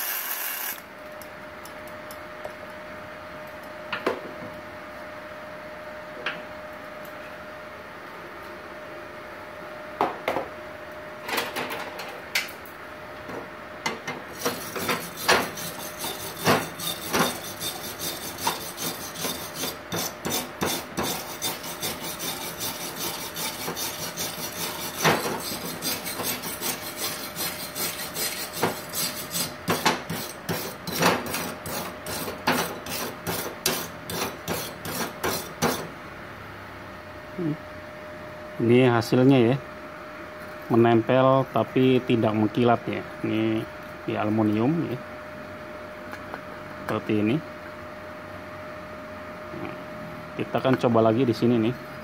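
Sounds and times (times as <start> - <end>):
wire brush scrubbing metal: 14.3 - 35.9.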